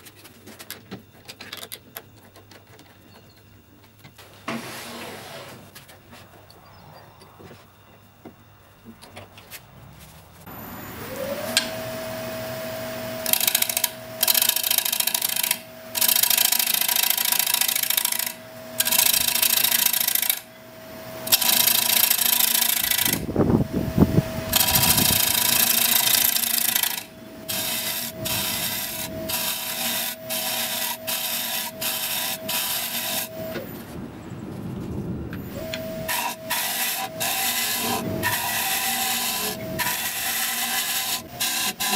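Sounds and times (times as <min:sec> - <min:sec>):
wood lathe motor whine: 0:10.5 - 0:33.6, 0:35.4 - 0:41.9
gouge rasping on wooden bowl: 0:36.1 - 0:41.9.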